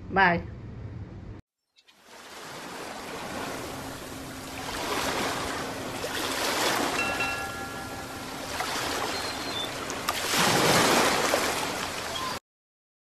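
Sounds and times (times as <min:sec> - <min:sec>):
waves breaking on a beach: 0:02.0 - 0:12.4.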